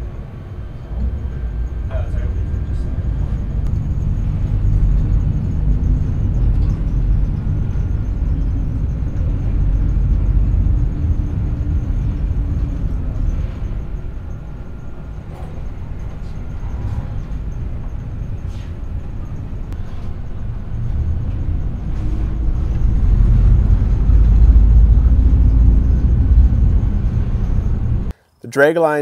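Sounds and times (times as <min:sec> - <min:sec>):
dragline machinery rumble: 0:00.0 - 0:28.1.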